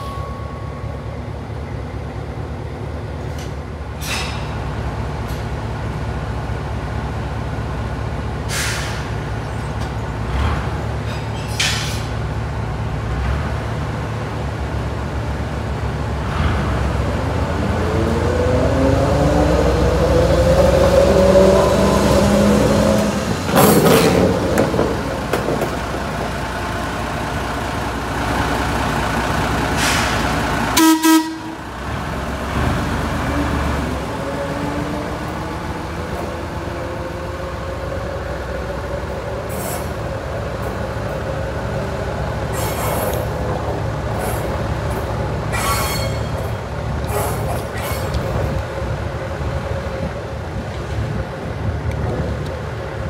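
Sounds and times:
train rumbling on tracks: 0.0 - 53.0.

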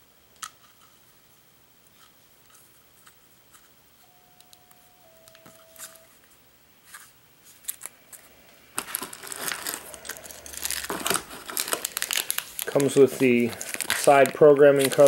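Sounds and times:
packaging rustling and crinkling: 6.8 - 15.0.

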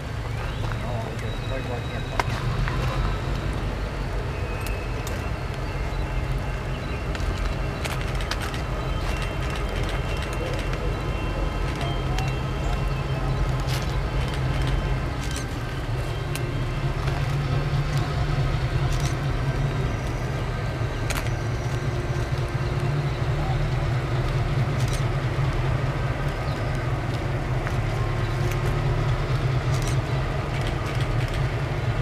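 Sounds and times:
diesel locomotive engine rumble: 0.0 - 32.0.

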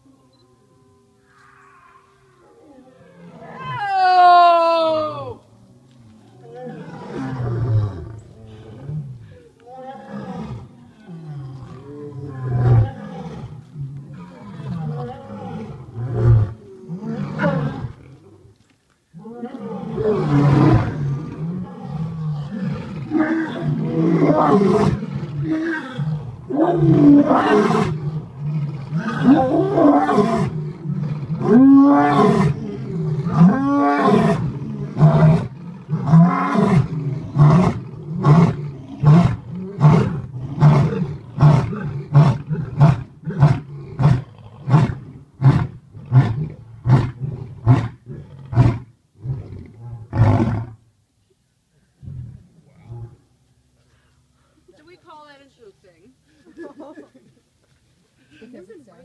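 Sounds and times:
lion roaring: 6.2 - 18.4, 19.2 - 50.8.

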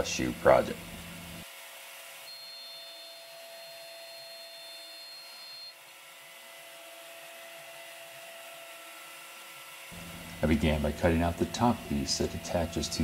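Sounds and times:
router spindle whine: 0.0 - 13.0
vacuum hose hiss: 9.9 - 13.0.

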